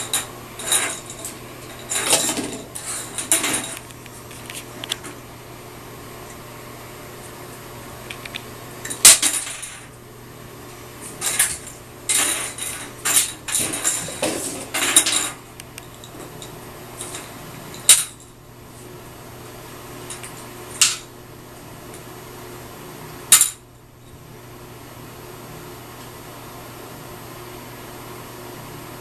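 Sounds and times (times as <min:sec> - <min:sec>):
plastic toy clattering in bathtub: 0:00.0 - 0:05.1, 0:11.2 - 0:15.4.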